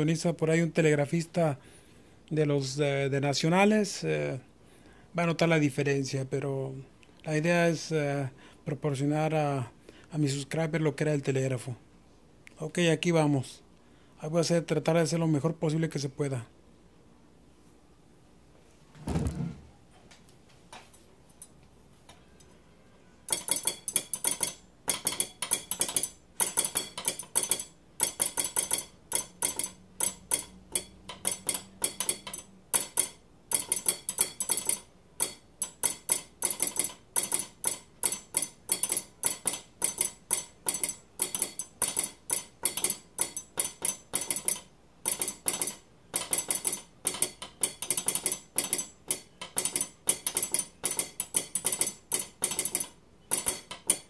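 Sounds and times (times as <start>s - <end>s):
spoon tapping knife: 23.3s - 54.0s.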